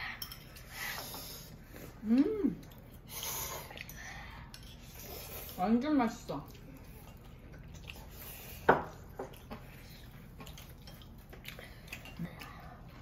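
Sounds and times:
chewing and slurping noodles: 6.5 - 13.0.

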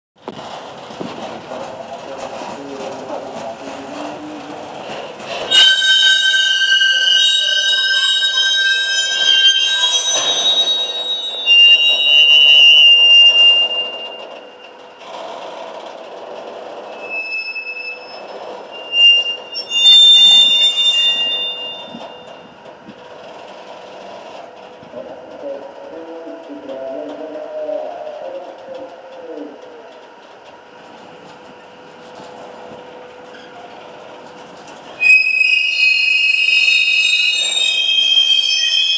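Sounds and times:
shrill squeal of rail retarder: 3.0 - 15.7, 16.7 - 28.4, 32.9 - 38.9.

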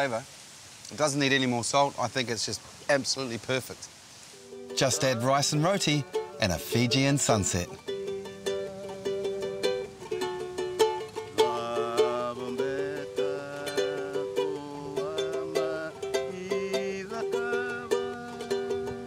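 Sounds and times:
ukulele strumming: 4.4 - 19.0.

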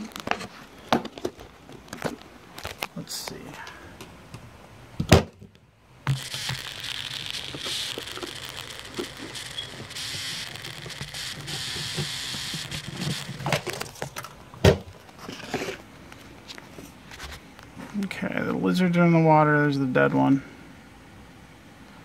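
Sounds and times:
rustling and crackling: 0.0 - 3.6, 5.4 - 18.0.

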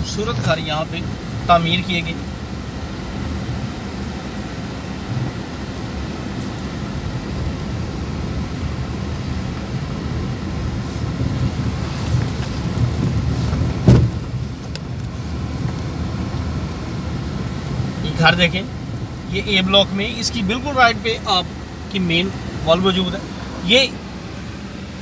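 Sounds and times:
car driving rumble inside cabin: 0.0 - 25.0
loud thump: 13.8 - 14.2.

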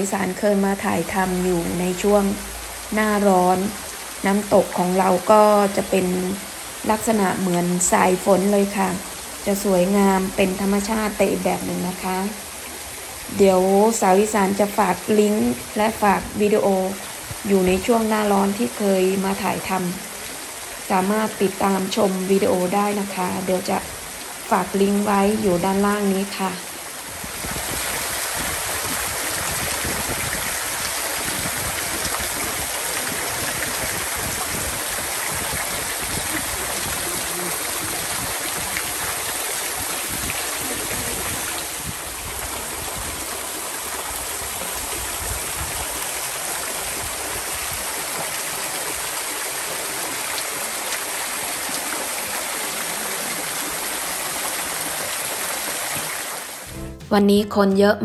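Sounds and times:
waterfall splashing into pool: 0.0 - 24.4, 25.0 - 56.9.

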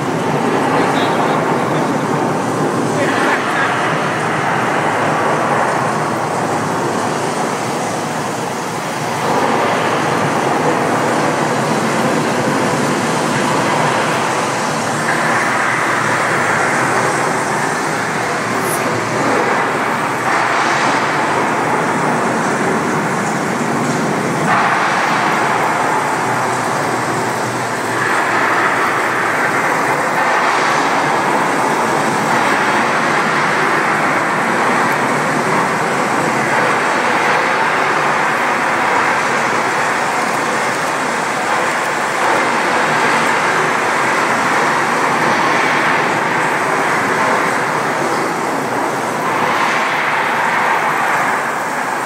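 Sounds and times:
water pouring onto pool and pavement: 0.0 - 52.0.

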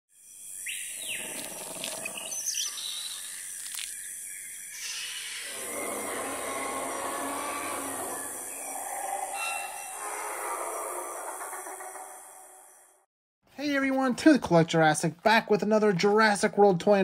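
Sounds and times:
bird calls and chirps: 0.2 - 12.9.

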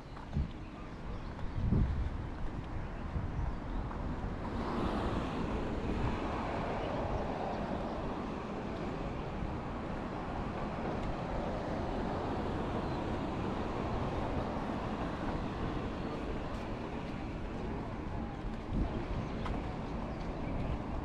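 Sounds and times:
steady low traffic rumble: 0.0 - 21.0.

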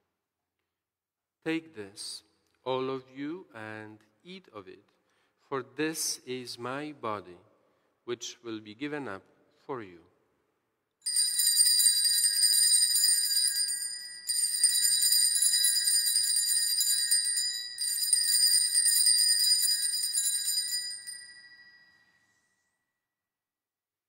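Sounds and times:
altar bells jangling: 11.0 - 22.6.

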